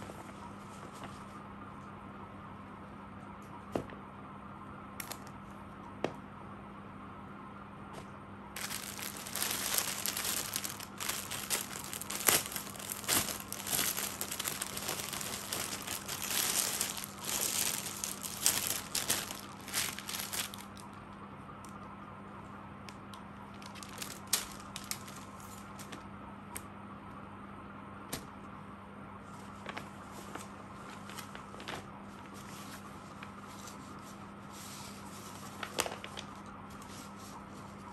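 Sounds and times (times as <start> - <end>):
fabric rustling: 8.6 - 20.7
plastic packaging crinkling: 8.6 - 21.0, 23.5 - 26.0.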